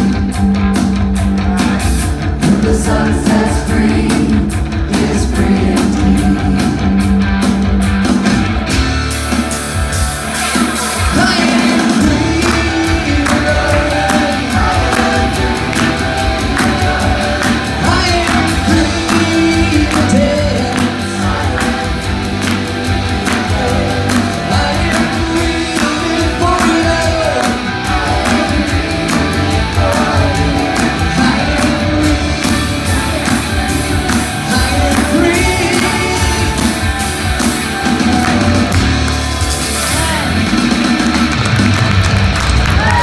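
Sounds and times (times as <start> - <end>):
rock band playing: 0.0 - 43.0
several people singing: 2.4 - 7.0, 11.1 - 37.1.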